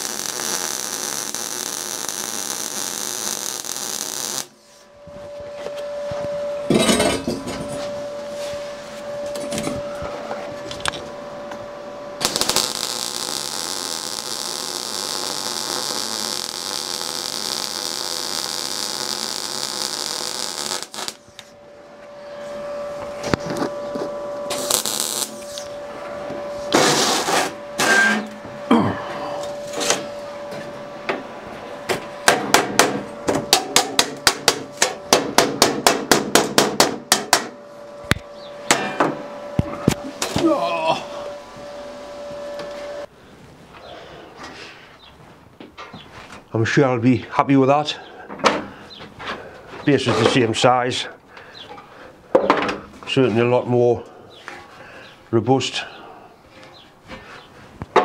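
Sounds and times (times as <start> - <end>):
welding arc hissing: 0.0 - 4.9, 12.2 - 21.5, 24.5 - 25.7, 26.7 - 28.0
machine hum: 0.0 - 46.5.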